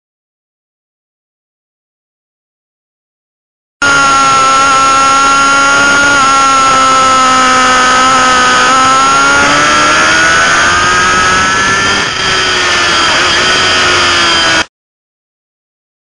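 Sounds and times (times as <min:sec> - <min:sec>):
motorcycle engine at high revs: 0:03.8 - 0:14.7.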